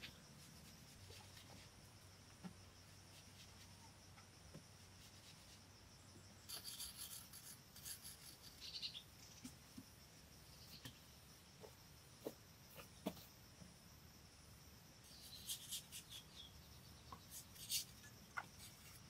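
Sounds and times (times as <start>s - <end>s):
blade scraping clay: 6.5s - 8.6s.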